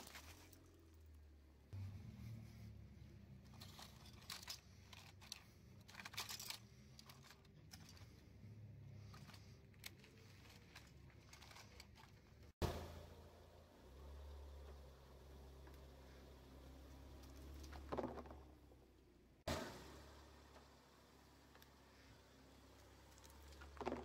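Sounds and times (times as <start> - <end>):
plastic toy clicking and crinkling: 3.5 - 8.2, 9.0 - 12.4.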